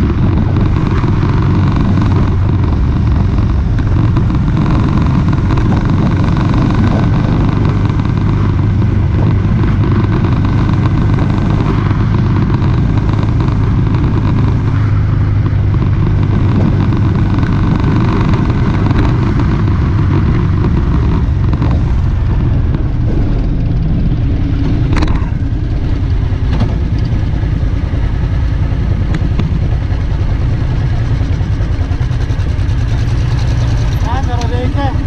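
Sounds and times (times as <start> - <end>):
motorcycle engine running: 0.0 - 35.0
wind noise on microphone: 0.0 - 35.0.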